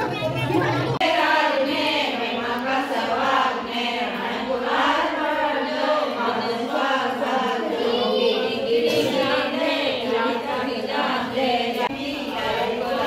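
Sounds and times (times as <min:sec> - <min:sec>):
women singing together: 0:00.6 - 0:13.0.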